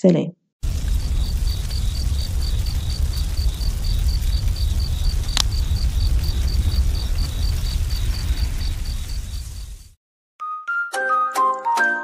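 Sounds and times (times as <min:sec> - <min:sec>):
sharp crack: 0:00.6 - 0:07.4
crickets chirping: 0:00.6 - 0:10.0
low rumble: 0:00.6 - 0:10.0.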